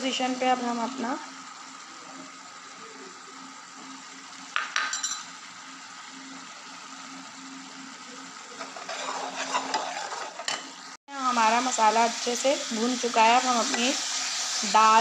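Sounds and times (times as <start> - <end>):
paste sizzling in a pan: 0.0 - 15.0
bowl and spoon clinking on pan: 4.6 - 5.3.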